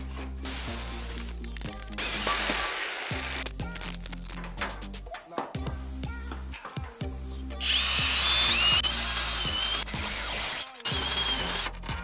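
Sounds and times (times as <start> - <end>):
background music: 0.0 - 12.0
cordless drill drilling into wood: 7.6 - 11.7.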